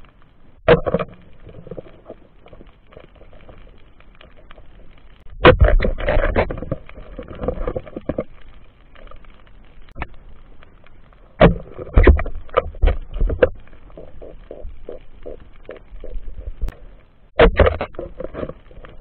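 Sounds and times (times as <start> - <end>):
faint ticks: 0.0 - 5.3, 6.6 - 17.3
muffled underwater knocks and clicks: 0.6 - 9.3, 11.4 - 19.0.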